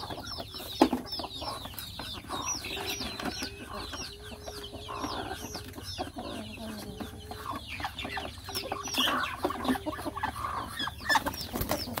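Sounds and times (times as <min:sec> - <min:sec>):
chicks peeping and clucking: 0:00.0 - 0:12.0.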